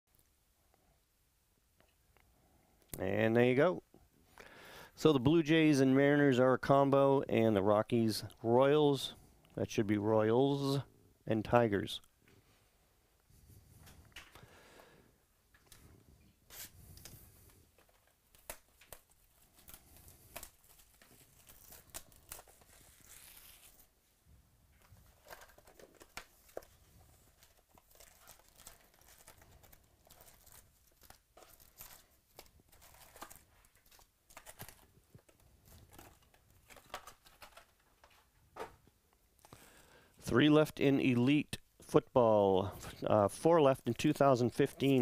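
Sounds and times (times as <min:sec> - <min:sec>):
foil packs rustling: 0:16.5 - 0:23.9, 0:25.0 - 0:38.4
plastic wrap crinkling and tearing: 0:16.5 - 0:24.0, 0:24.8 - 0:38.3.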